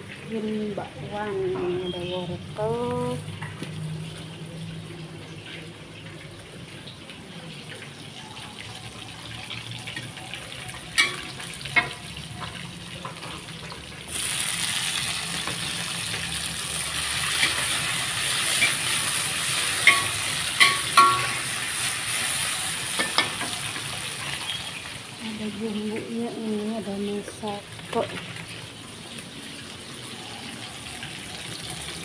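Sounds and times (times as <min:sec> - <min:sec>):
food sizzling in hot oil: 0:00.0 - 0:32.0
metal spatula clinking on wok: 0:10.9 - 0:13.4, 0:19.8 - 0:21.5.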